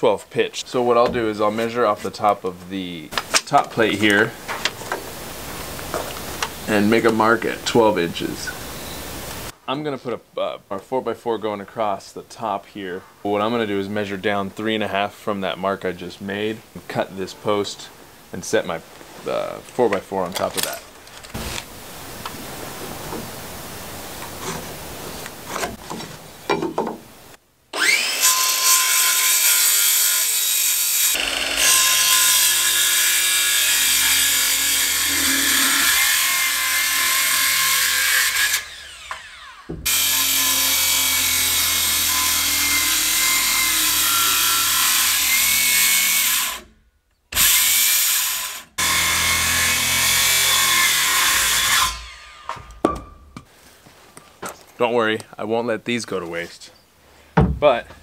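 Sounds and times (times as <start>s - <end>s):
wood knocking: 25.5s - 27.1s, 52.5s - 53.5s, 57.4s - 58.0s
saw cutting wood: 27.7s - 46.7s, 47.3s - 52.8s.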